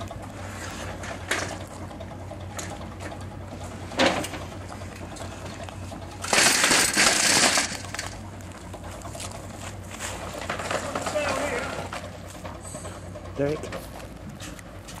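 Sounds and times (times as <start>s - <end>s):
metal scraping on gravel: 0.0s - 1.8s, 5.1s - 14.6s.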